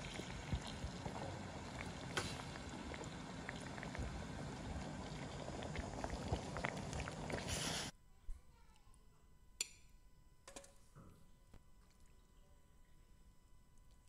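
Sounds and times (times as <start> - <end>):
stew bubbling at a simmer: 0.0 - 7.9.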